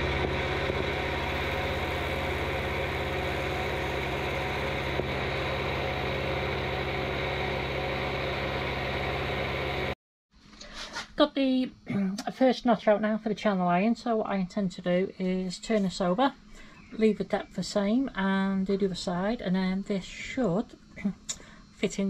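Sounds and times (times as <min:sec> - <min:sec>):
milling machine cutting steel: 0:00.0 - 0:10.0.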